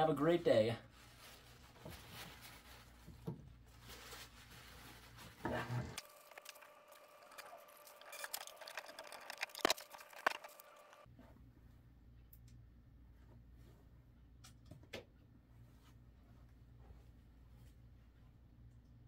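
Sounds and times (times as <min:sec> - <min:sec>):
paper towel rubbing: 0:00.8 - 0:09.3.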